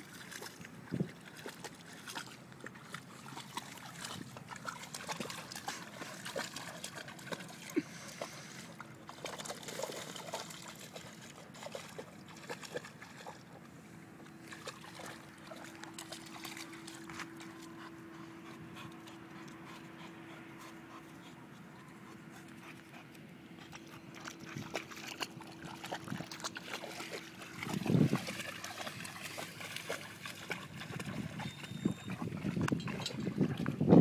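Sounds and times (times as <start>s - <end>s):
dog splashing in water: 0.0s - 13.6s, 14.4s - 17.6s, 23.7s - 34.0s.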